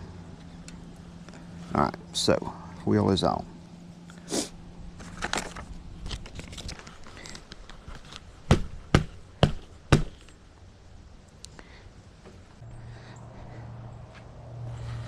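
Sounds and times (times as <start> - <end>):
sharp knocks on seat post: 8.5 - 10.2.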